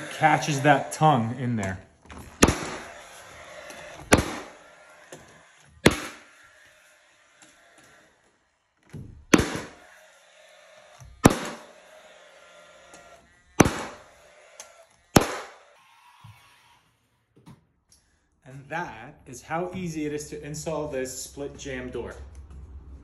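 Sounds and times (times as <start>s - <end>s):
nail gun firing: 2.3s - 4.7s, 5.8s - 6.3s, 9.3s - 9.8s, 11.2s - 11.7s, 13.6s - 14.1s, 15.1s - 15.6s.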